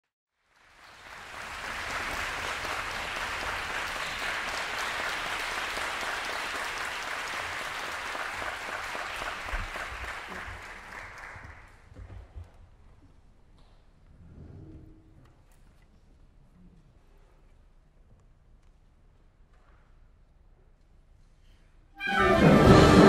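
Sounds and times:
audience applauding: 0.4 - 11.9.

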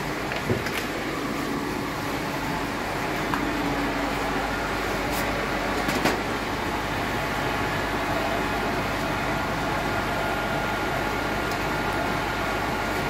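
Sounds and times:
aquarium pumps humming: 0.0 - 13.0.

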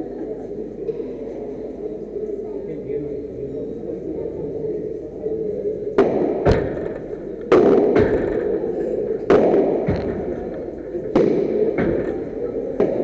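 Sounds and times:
racket hitting ball: 6.0 - 8.4, 9.2 - 12.2, 12.8 - 13.0
ball bouncing: 9.2 - 13.0.

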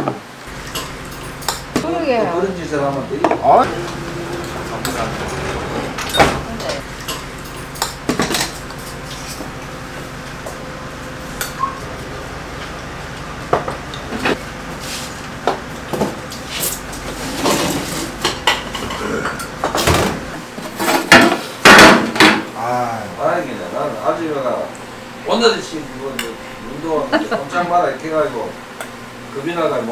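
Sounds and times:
steady background noise: 0.0 - 29.9
metal bowls and lids clinking: 0.5 - 1.8, 3.6 - 9.4.

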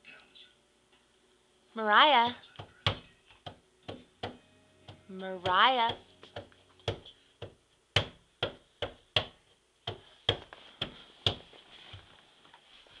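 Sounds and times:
hand slapping on a door: 2.6 - 11.5.

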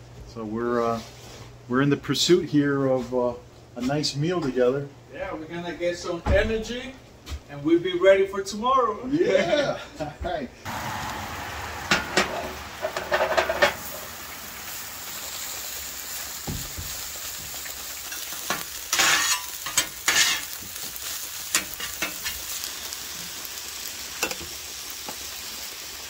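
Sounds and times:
eggs sizzling on a griddle: 10.6 - 26.0
metal spatula scraping and tapping: 18.1 - 20.6.

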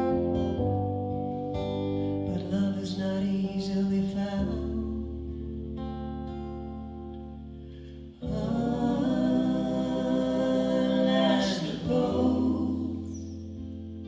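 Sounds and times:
held keyboard chord: 0.0 - 2.6
women singing in harmony: 8.2 - 13.8.

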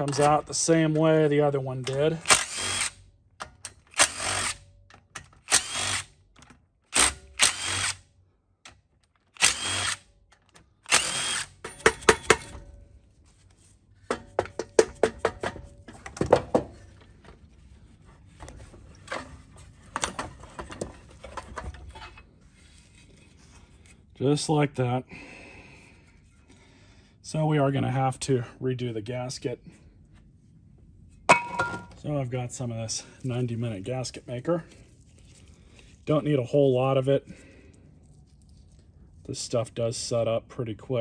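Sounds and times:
impact driver spinning: 2.1 - 3.0, 3.8 - 4.6, 5.4 - 6.2, 6.9 - 8.0, 9.3 - 12.6.

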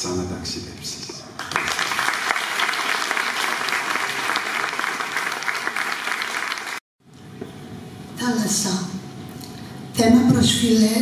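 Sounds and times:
audience applauding: 1.4 - 6.8.

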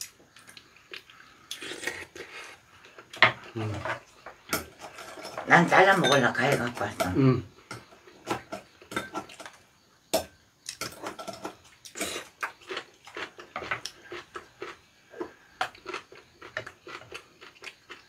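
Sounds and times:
chewing and crunching food: 0.0 - 5.3, 10.7 - 18.0.

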